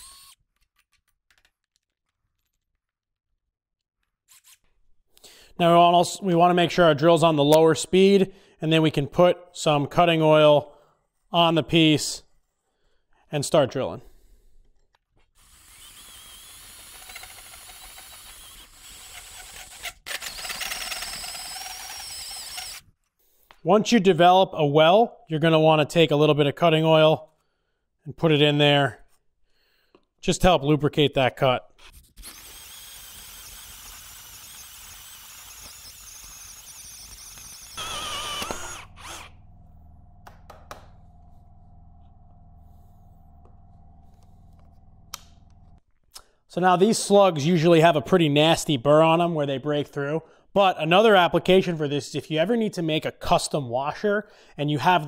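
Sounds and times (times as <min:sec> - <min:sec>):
drill with hole saw cutting steel: 0:00.0 - 0:00.4, 0:04.3 - 0:04.7, 0:15.4 - 0:22.9, 0:32.1 - 0:39.6.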